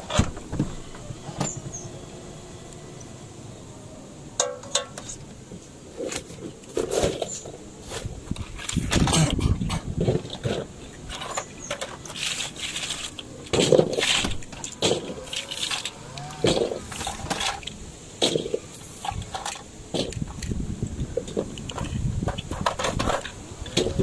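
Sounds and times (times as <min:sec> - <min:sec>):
plastic toy clicks and rattles: 0:10.1 - 0:20.6.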